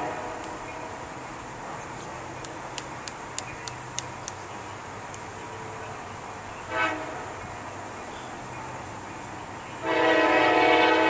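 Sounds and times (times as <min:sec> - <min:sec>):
locomotive air horn blasts: 0:00.0 - 0:00.4, 0:06.7 - 0:07.3, 0:09.8 - 0:11.0.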